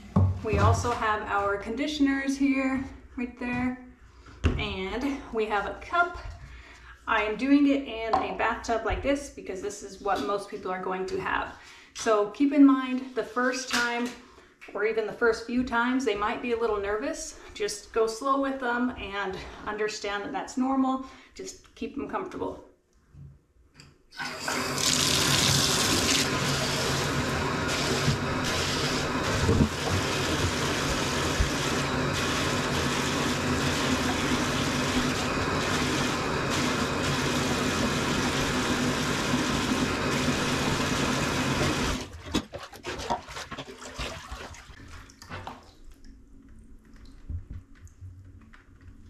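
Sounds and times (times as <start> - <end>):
bathtub tap running: 24.5 - 42.0
water splashes and drips: 42.0 - 48.1.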